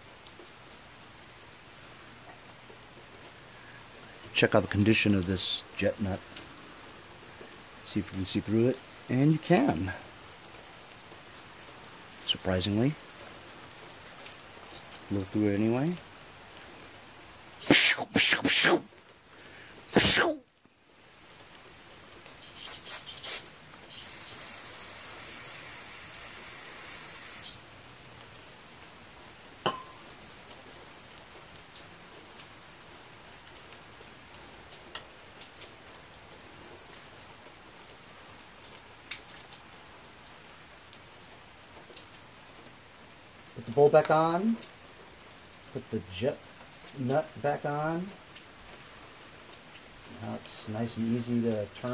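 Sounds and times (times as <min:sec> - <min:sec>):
steady aerosol hiss: 0:17.4 - 0:20.4, 0:22.3 - 0:28.0, 0:50.2 - 0:51.9
aerosol spray squirts: 0:17.6 - 0:18.8, 0:19.9 - 0:20.4, 0:22.4 - 0:27.6.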